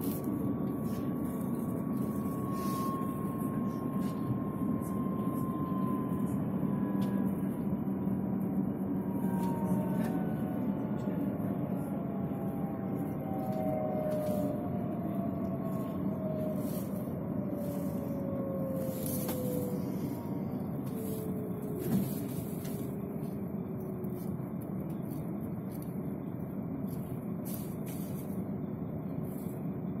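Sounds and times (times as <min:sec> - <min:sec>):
bus rumble from inside: 0:00.0 - 0:30.0.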